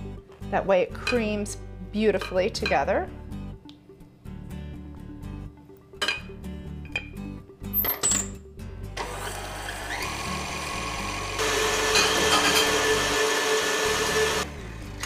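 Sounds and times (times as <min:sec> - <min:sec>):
electric stand mixer running: 0:09.0 - 0:15.0.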